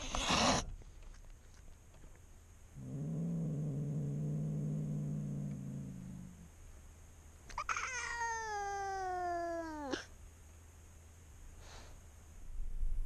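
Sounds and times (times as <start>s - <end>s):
cat hissing: 0.0s - 0.7s, 7.5s - 10.1s
cat growling: 2.8s - 6.5s.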